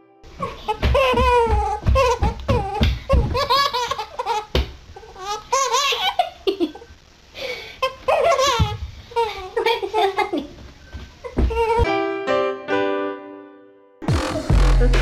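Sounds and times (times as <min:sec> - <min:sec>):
baby laughing: 0:00.4 - 0:06.8, 0:07.8 - 0:10.5.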